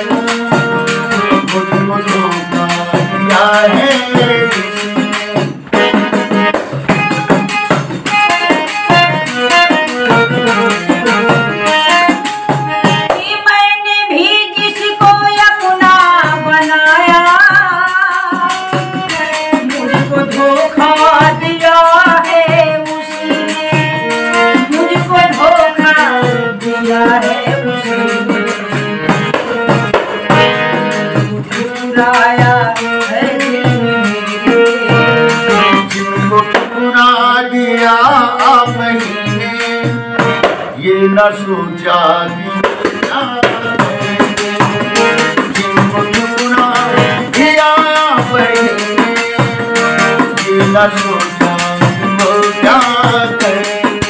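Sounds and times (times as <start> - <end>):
frame drum beating: 0.0 - 13.3, 27.1 - 36.8, 38.7 - 40.8, 42.6 - 54.0
harmonium playing chords: 0.0 - 54.0.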